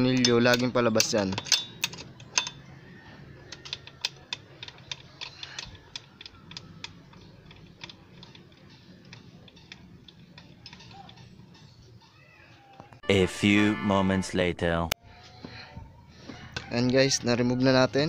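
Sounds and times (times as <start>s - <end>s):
wrench and bolt clicking: 0.0s - 12.9s.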